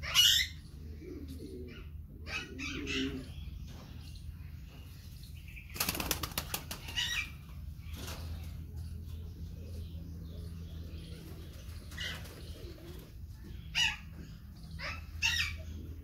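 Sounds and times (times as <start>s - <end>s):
pigeon wings flapping: 5.8s - 7.1s.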